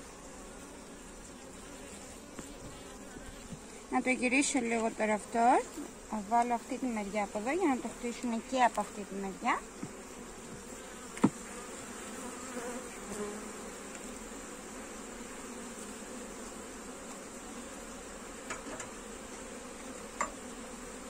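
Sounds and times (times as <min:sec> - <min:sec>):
honeybees buzzing: 0:00.0 - 0:21.0.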